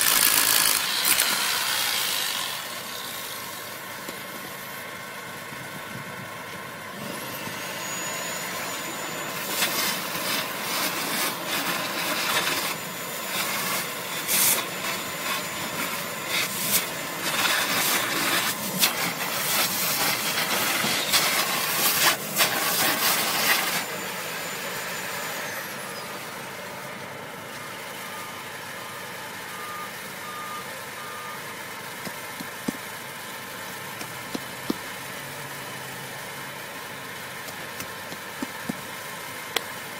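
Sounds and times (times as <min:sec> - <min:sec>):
vacuum cleaner motor whine: 0:00.0 - 0:03.3, 0:07.0 - 0:26.7
vacuum sucking grit with crackles: 0:07.0 - 0:26.1.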